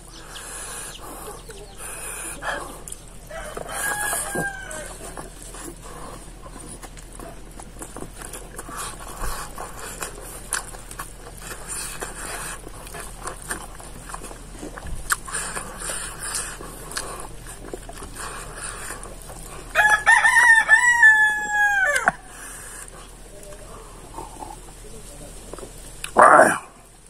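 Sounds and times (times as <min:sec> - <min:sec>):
chewing: 0:00.0 - 0:27.0
rooster crowing: 0:00.1 - 0:05.4, 0:19.7 - 0:22.3
fingers working rice on plate: 0:01.0 - 0:14.5.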